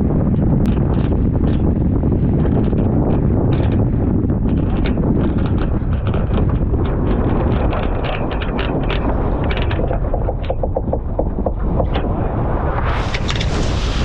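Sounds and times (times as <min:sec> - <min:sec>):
wind buffeting microphone: 0:00.0 - 0:14.0
scattered knocks: 0:02.6 - 0:12.4
rapid clicks: 0:04.4 - 0:12.4.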